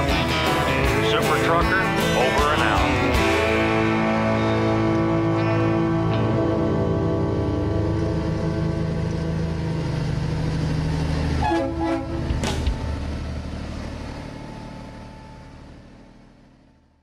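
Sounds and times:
low engine rumble: 0.0 - 17.0
air horn blasting: 11.3 - 12.4.

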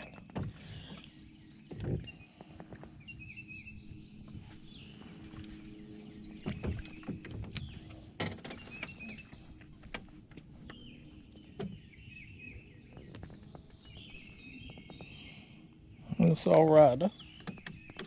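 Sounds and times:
gear knocking in a boat: 0.0 - 3.0, 6.3 - 15.4, 16.2 - 18.0
birds chirping: 0.0 - 18.0.

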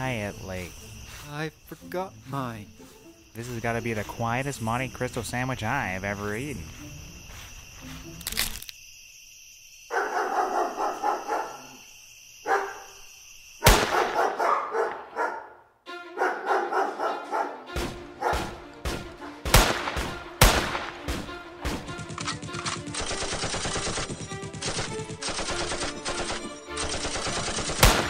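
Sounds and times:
crickets chirping: 0.0 - 28.0
dogs barking: 9.9 - 11.8, 12.4 - 13.0, 13.8 - 18.6
gunshots: 13.6 - 14.4, 17.8 - 28.0.

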